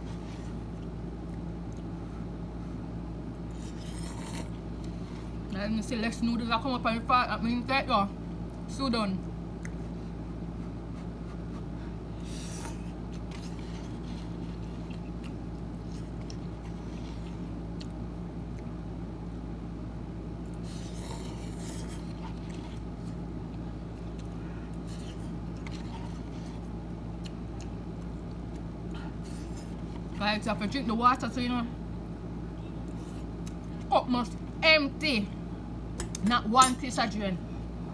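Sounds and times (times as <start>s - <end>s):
eating sounds: 3.4s - 5.2s, 10.6s - 18.8s, 20.4s - 30.2s
fork scraping noodles in cup: 3.5s - 5.2s, 12.2s - 15.2s, 20.6s - 23.2s.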